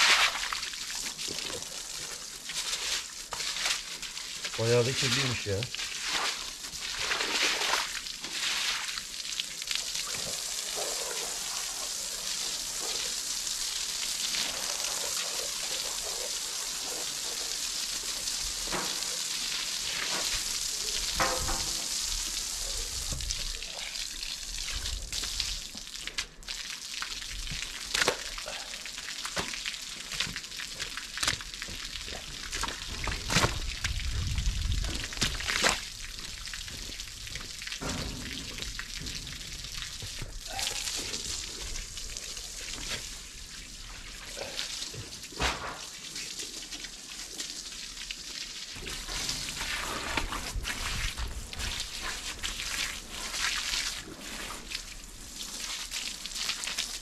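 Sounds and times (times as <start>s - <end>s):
wet splashing and rubbing: 0.0s - 1.9s, 2.5s - 9.1s, 48.8s - 54.8s
water rushing: 19.8s - 24.0s.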